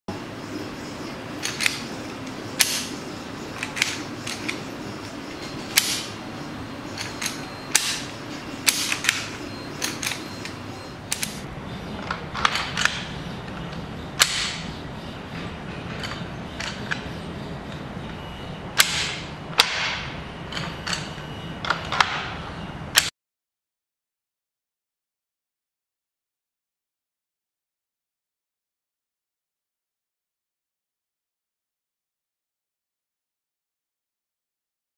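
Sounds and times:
toy pistol slide clacking: 0:01.4 - 0:01.9, 0:03.6 - 0:04.6, 0:07.0 - 0:11.4.

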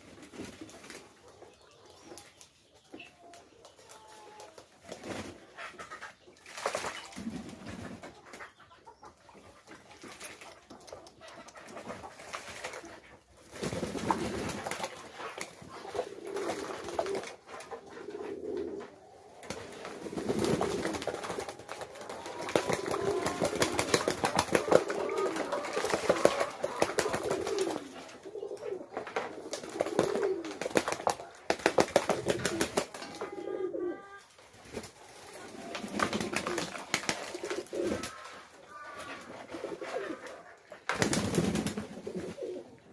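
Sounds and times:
wings flapping: 0:06.4 - 0:08.0, 0:10.0 - 0:17.7, 0:19.4 - 0:28.4, 0:29.0 - 0:33.3, 0:34.6 - 0:42.6
pigeons cooing: 0:07.1 - 0:42.9.

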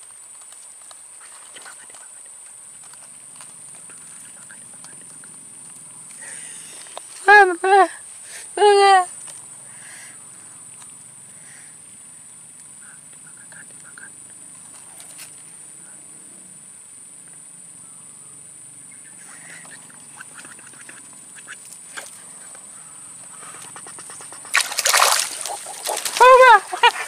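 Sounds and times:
water splashing: 0:23.8 - 0:27.0.

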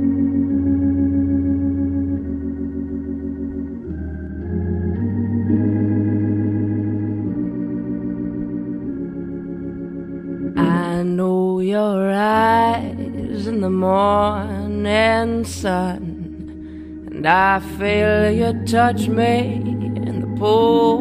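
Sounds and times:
organ playing wavering chords: 0:00.0 - 0:21.0
woman singing: 0:10.6 - 0:21.0.

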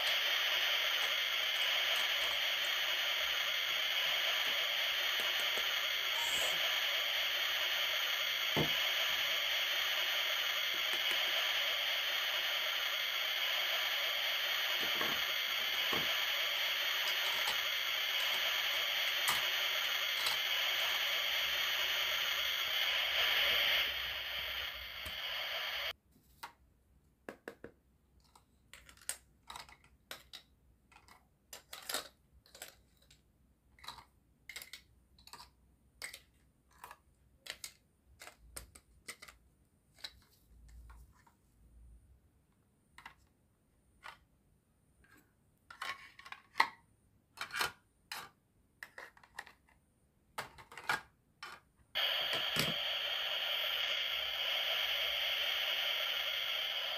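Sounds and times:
steady sizzling hiss: 0:00.0 - 0:26.0, 0:51.9 - 0:56.9.

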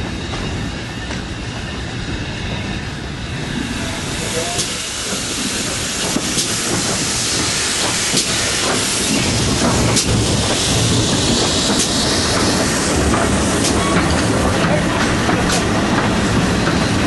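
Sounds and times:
steam train rumble: 0:00.0 - 0:17.0
steam hiss: 0:03.8 - 0:14.4.

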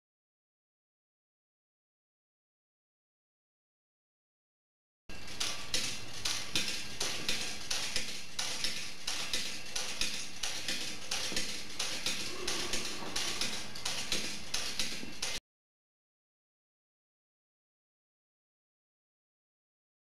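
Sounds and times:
spinning hammer ticking: 0:05.2 - 0:15.4.

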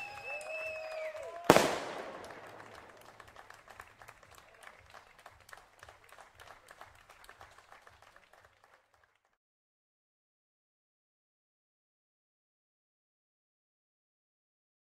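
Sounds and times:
small crowd applauding: 0:00.0 - 0:09.4
firework bang echo: 0:01.4 - 0:03.5.

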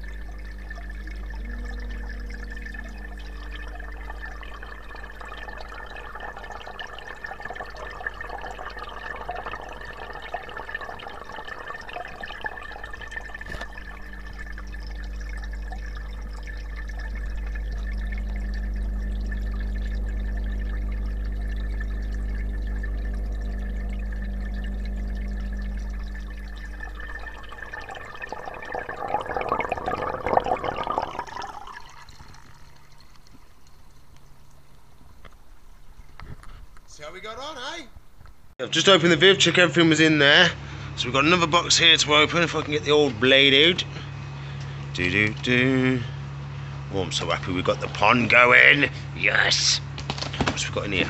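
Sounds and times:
thin high whine: 0:00.0 - 0:34.5
steady low hum: 0:00.0 - 0:50.0.

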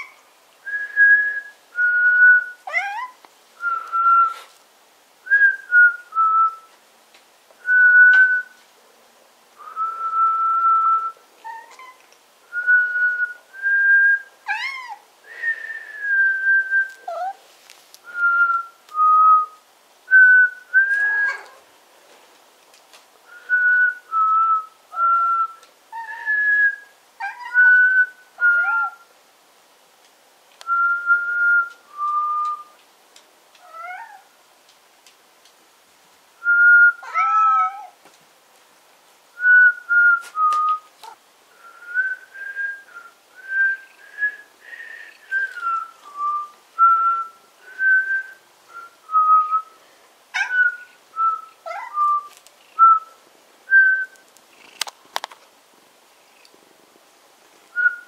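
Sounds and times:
cat meowing: 0:33.6 - 0:34.3, 0:37.0 - 0:38.0.

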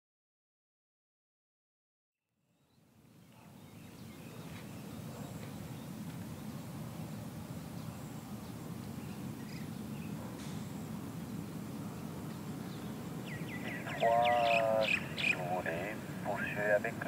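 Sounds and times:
bird chirping trill: 0:12.6 - 0:16.1.

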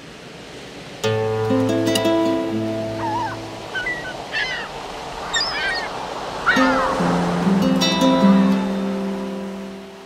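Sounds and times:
sea surf washing: 0:00.0 - 0:10.0
guitar music: 0:01.0 - 0:03.7, 0:06.6 - 0:10.0
short high chirping calls: 0:03.0 - 0:06.9.

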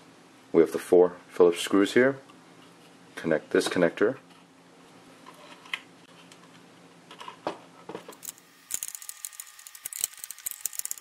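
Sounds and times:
screwdriver ratcheting clicks: 0:08.1 - 0:11.0.

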